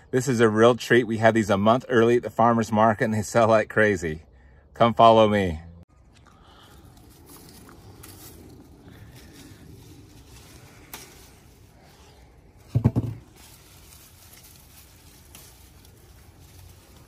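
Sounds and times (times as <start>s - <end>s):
leaves and branches rustling: 5.9s - 17.0s.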